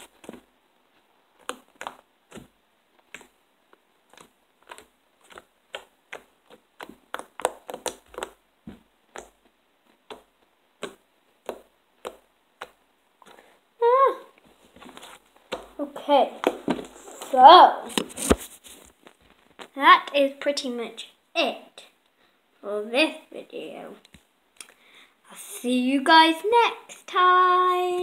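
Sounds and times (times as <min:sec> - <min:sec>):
slime clicking and popping: 0:01.4 - 0:03.4, 0:04.1 - 0:13.4.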